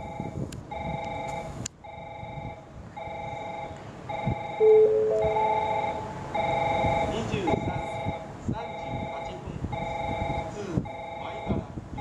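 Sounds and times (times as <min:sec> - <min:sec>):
pulsing electronic warning tone: 0:00.0 - 0:11.6
rising chime: 0:04.6 - 0:06.6.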